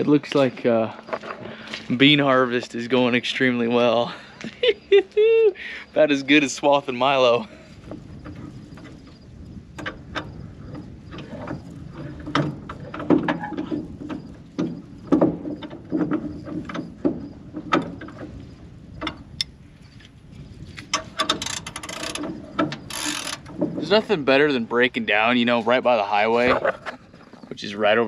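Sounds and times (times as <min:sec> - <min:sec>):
metal clinks and knocks: 0:07.7 - 0:20.1.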